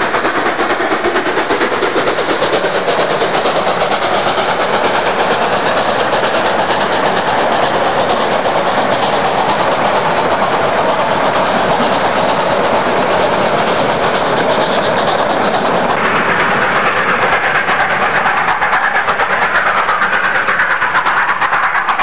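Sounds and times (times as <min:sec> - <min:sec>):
train wheels clicking on rails: 0:00.0 - 0:22.0.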